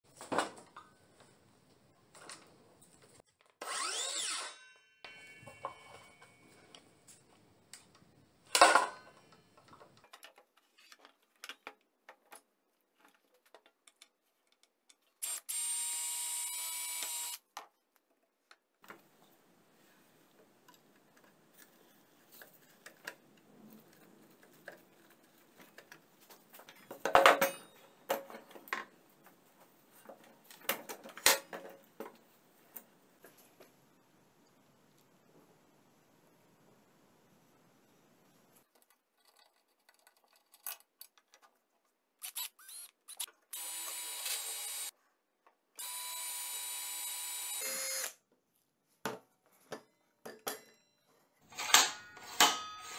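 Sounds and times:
cordless drill running: 15.2 - 17.4, 42.3 - 44.9, 45.8 - 48.2.

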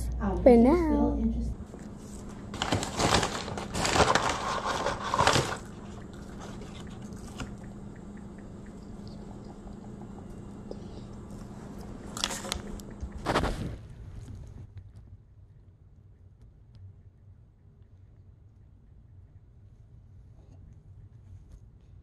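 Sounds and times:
steady low hum: 0.0 - 22.0
paper bag crinkling: 1.8 - 7.6, 12.1 - 13.9.

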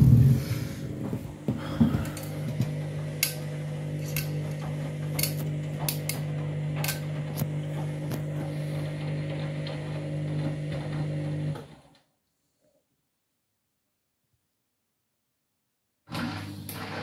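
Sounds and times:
washing machine motor hum: 0.0 - 12.0, 16.1 - 17.0.

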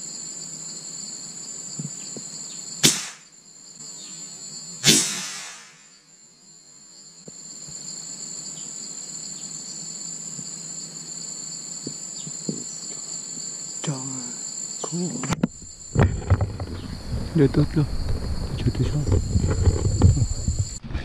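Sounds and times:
insects droning: 0.0 - 21.0
sharp click: 2.8 - 3.3, 4.8 - 5.9.

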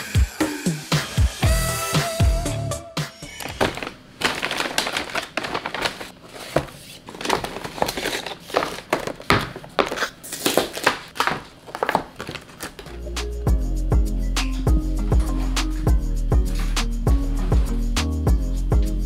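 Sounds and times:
takeout bag and boxes crinkling: 3.4 - 13.0.

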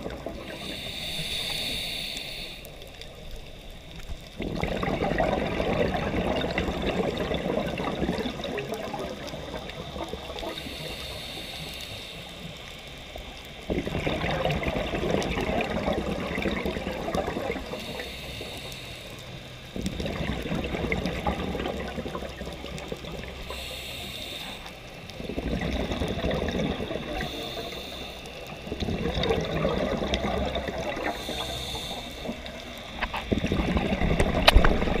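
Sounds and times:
underwater bubbling exhalations: 0.0 - 1.5, 4.4 - 10.8, 13.6 - 18.5, 19.7 - 23.7, 25.1 - 35.0
regulator inhalation hiss: 0.4 - 4.1, 10.4 - 13.0, 17.6 - 19.7, 23.3 - 25.2, 26.9 - 28.8, 30.5 - 33.2.

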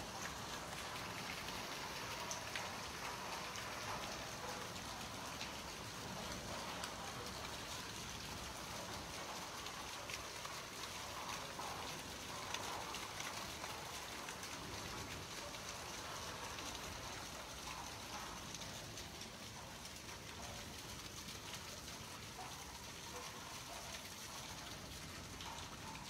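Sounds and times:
heavy rain falling: 0.0 - 26.0.

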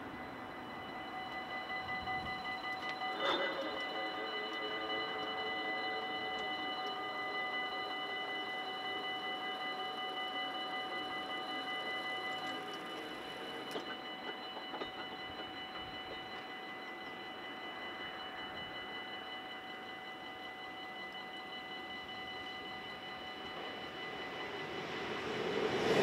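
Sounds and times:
level crossing bells ringing: 0.0 - 25.8.

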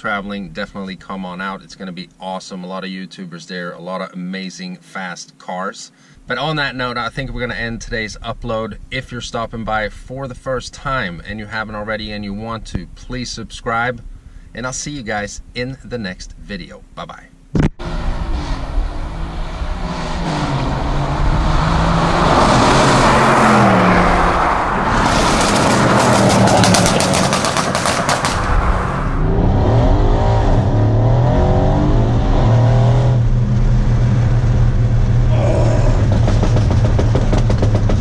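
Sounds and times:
exhaust pops and crackles: 6.4 - 16.6, 24.8 - 29.0, 33.3 - 38.0
car engine revving hard: 17.8 - 38.0
engine drone inside car cabin: 17.8 - 38.0.

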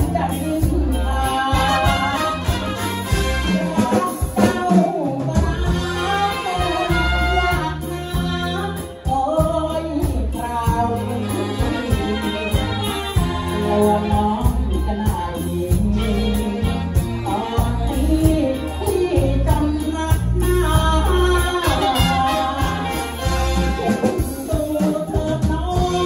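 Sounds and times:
bass: 0.0 - 26.0
drum kit: 0.0 - 26.0
electric guitar: 0.0 - 26.0
man singing into a microphone: 0.0 - 26.0
saxophones and trumpet: 1.2 - 4.6, 5.7 - 8.9, 10.8 - 14.5, 21.1 - 25.1, 25.7 - 26.0.

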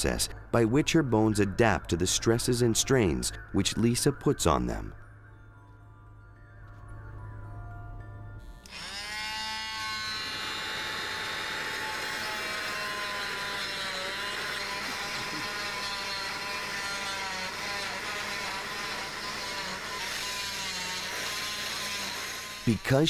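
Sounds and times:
cast saw whining: 8.4 - 23.0.

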